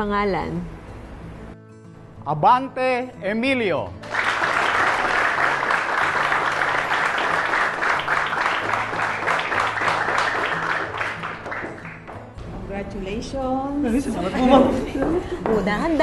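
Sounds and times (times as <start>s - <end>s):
background music: 0.0s - 16.0s
crowd applauding: 4.0s - 12.2s.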